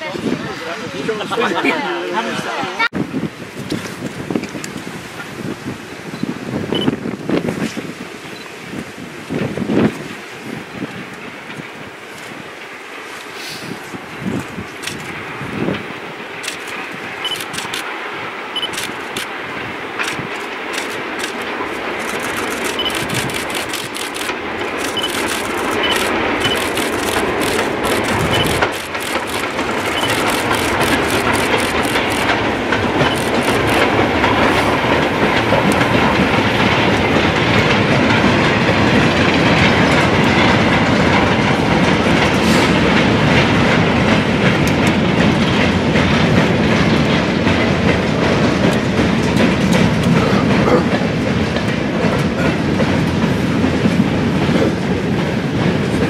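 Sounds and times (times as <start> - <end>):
steam locomotive beats: 4.2 - 56.0
wagon wheels clattering over rail joints: 18.6 - 56.0.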